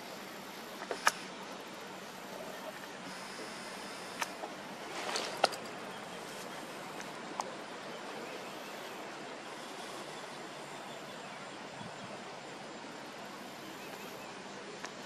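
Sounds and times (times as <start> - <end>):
outdoor background hiss: 0.0 - 15.0
sharp clicks: 0.8 - 1.3.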